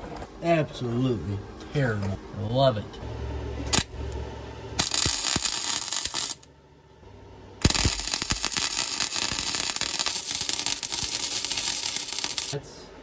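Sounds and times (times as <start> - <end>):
welding arc crackling: 3.6 - 4.1, 4.8 - 6.5, 7.6 - 12.6.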